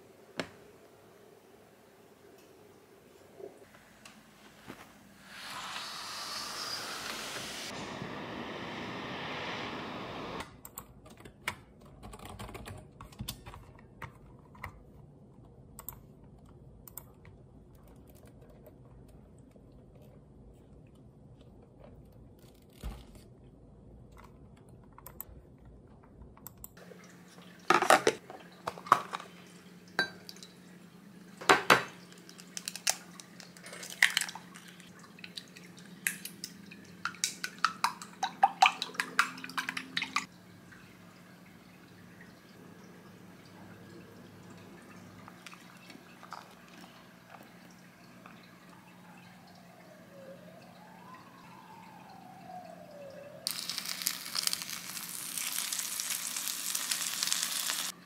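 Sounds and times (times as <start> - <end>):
steady hiss: 3.7 - 10.4.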